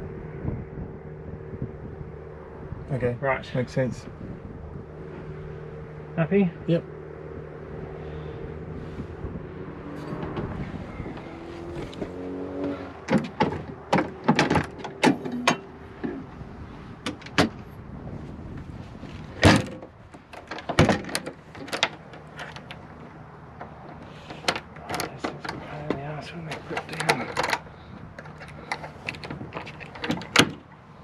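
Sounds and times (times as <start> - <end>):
panel latches clicking and rattling: 13.0 - 16.3, 17.0 - 17.6, 19.4 - 30.8
loud clunks: 19.4 - 22.0.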